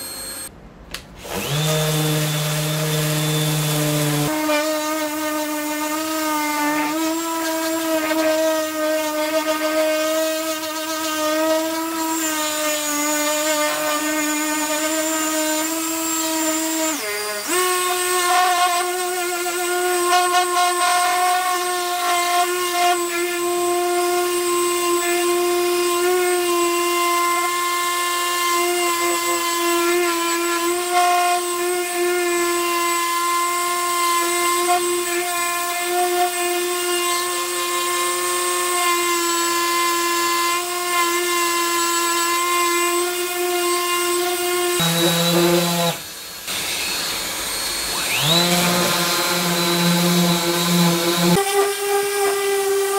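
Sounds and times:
orbital sander humming: 43.0s - 52.9s.

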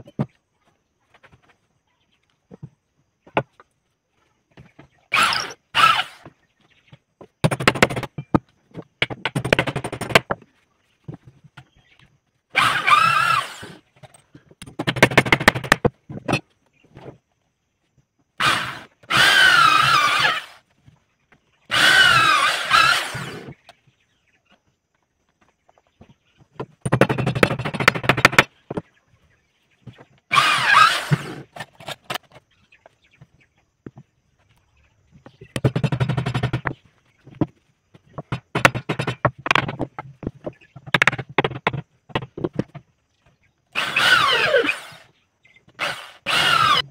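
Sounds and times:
electric drill boring into wood: 5.1s - 6.3s, 12.6s - 13.8s, 18.4s - 20.6s, 21.7s - 23.5s, 30.3s - 31.6s, 43.8s - 45.1s, 45.8s - 46.9s.

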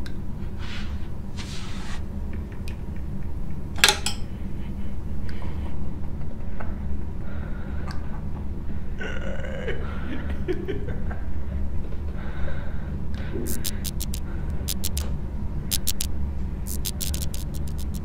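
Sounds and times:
sharp crackling clicks: 13.5s - 15.1s, 15.7s - 16.1s, 16.7s - 18.0s.

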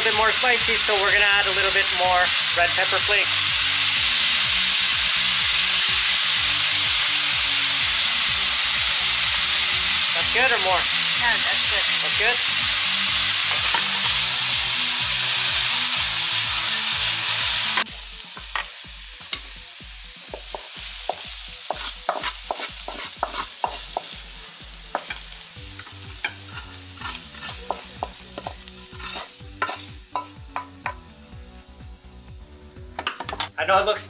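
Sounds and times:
potatoes sizzling in hot oil: 0.0s - 34.0s
wooden spatula scraping pan: 21.7s - 23.8s, 26.3s - 29.8s.

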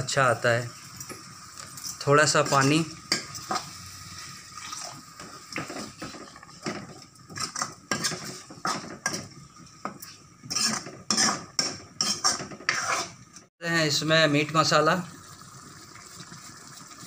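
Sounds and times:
metal ladle scraping a pan: 1.7s - 13.3s.

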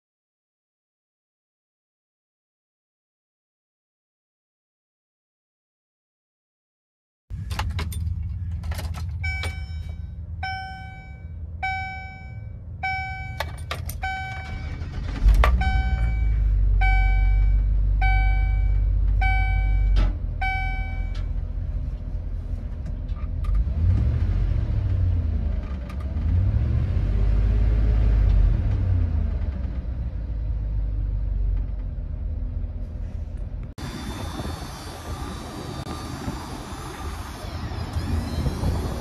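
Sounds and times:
truck engine starting and idling: 7.3s - 39.0s
dashboard warning chime: 7.5s - 21.3s.

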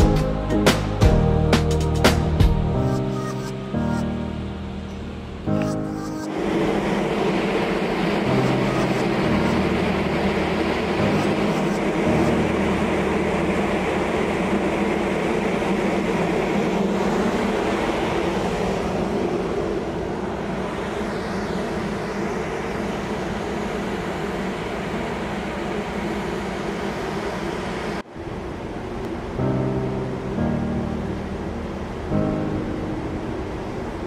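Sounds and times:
rushing noise: 0.0s - 34.0s
ship machinery drone: 0.0s - 34.0s.

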